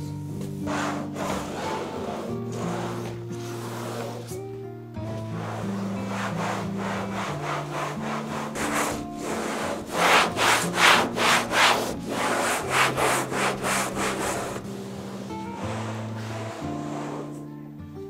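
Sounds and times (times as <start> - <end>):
cloth wiping glass window: 0.5 - 4.4, 5.0 - 17.5.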